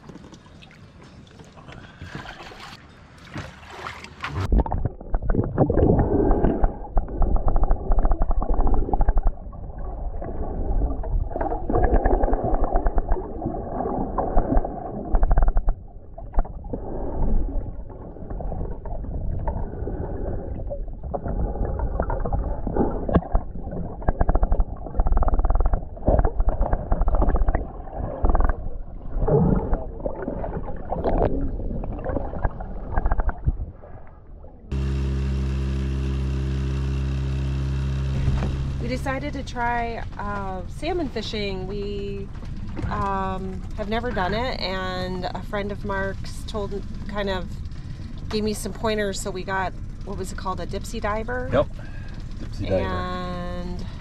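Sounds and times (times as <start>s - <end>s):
muffled water sloshing and gurgling: 0.0s - 35.3s, 37.6s - 54.0s.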